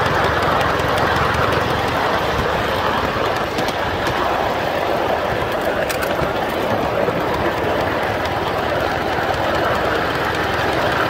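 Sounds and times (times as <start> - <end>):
steam locomotive rushing: 0.0 - 11.0.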